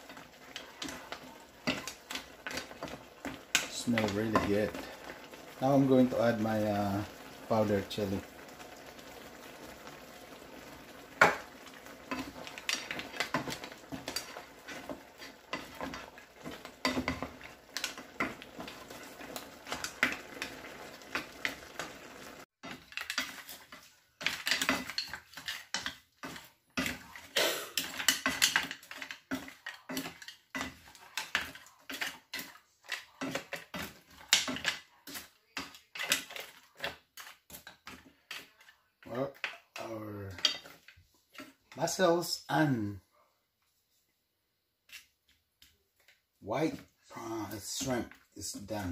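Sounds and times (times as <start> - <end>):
sauce simmering hiss: 0.0 - 22.5, 26.9 - 28.2
wooden spoon clacking in pan: 0.0 - 42.0.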